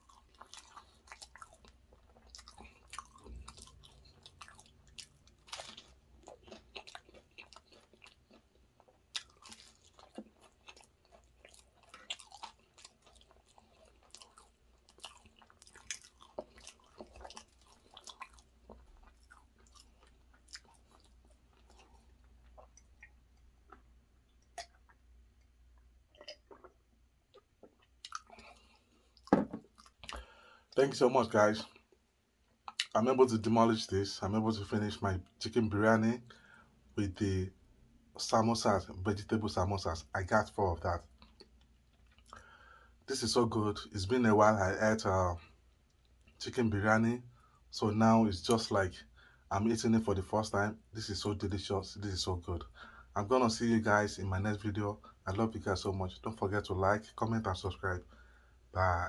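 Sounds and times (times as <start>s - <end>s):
person chewing crunchy food: 0.0s - 30.4s.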